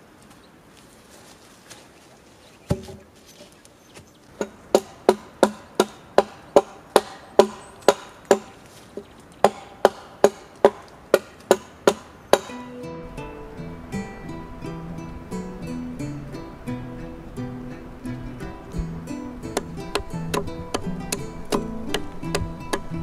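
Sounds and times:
hand axe chopping wooden pole: 2.7s - 3.1s, 4.4s - 12.6s, 19.5s - 23.0s.

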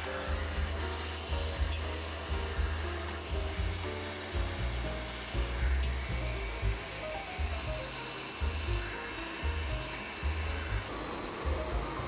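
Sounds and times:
vacuum hose sucking air: 0.0s - 10.9s
music with pulsing bass: 0.3s - 8.9s.

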